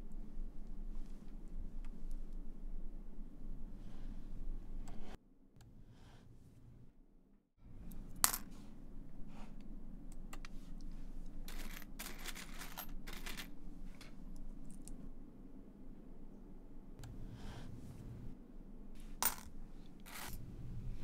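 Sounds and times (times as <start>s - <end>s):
coins clinking and rattling: 11.4s - 14.1s, 19.2s - 20.4s.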